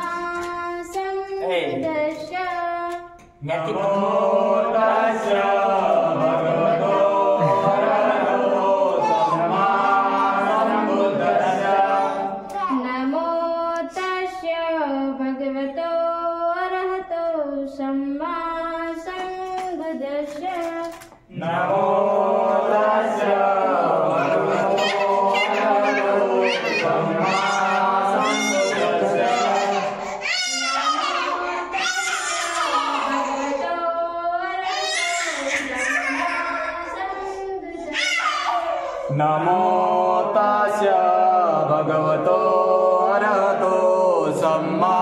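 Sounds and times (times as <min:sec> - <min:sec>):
woman singing devotional song: 0:00.0 - 0:03.4, 0:12.3 - 0:21.4, 0:24.1 - 0:37.9.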